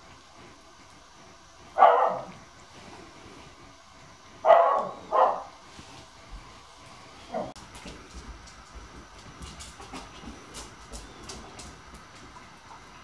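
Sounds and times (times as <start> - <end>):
dog barking: 1.8 - 2.4, 4.4 - 5.6.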